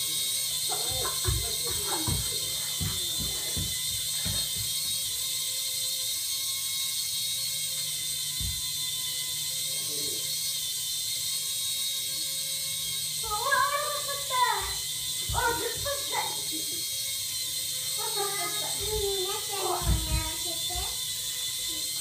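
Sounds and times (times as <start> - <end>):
toy motor buzzing whir: 0.0 - 22.0.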